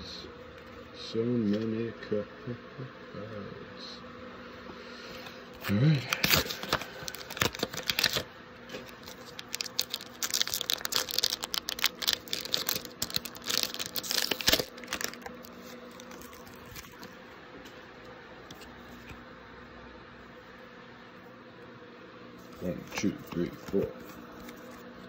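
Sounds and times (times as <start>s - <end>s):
foil wrapper tearing and crackling: 6.1s - 17.1s.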